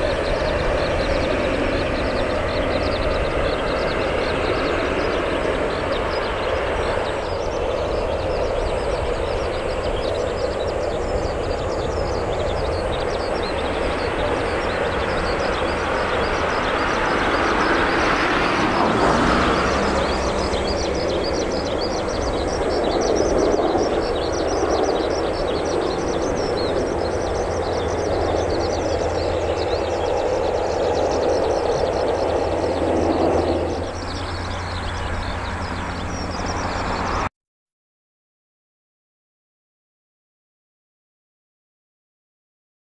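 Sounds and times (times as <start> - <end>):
jet engines taxiing: 0.0 - 37.3.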